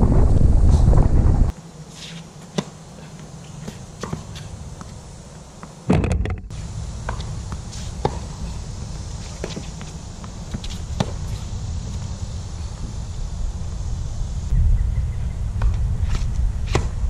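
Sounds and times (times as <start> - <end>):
wind buffeting microphone: 0.0 - 1.5, 11.6 - 17.0
tennis ball struck and bouncing: 5.9 - 8.3, 15.6 - 17.0.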